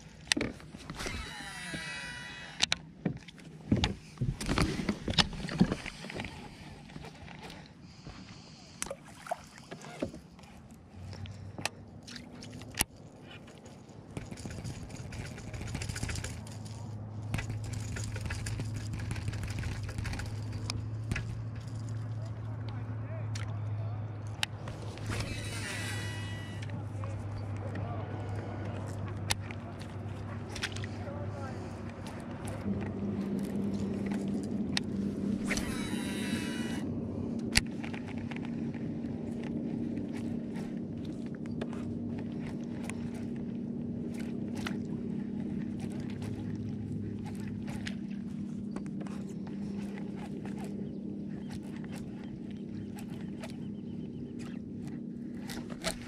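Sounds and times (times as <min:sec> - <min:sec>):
low motor hum: 0:00.0 - 0:56.0
high whirring whine: 0:00.3 - 0:02.8, 0:24.3 - 0:27.7, 0:30.5 - 0:56.0
small motor humming: 0:00.9 - 0:02.7, 0:24.6 - 0:27.4, 0:33.5 - 0:37.6.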